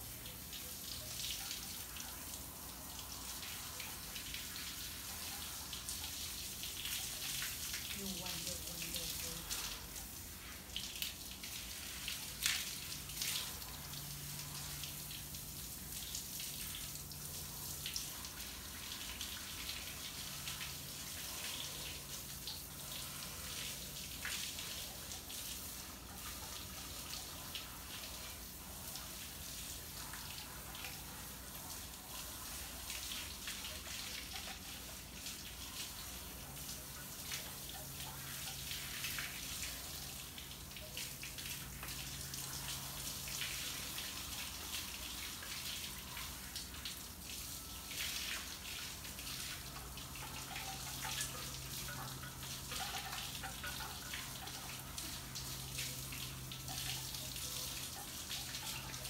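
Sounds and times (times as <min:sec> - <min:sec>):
garden hose spraying water: 0:00.0 - 0:59.0
water splashing: 0:00.0 - 0:59.0.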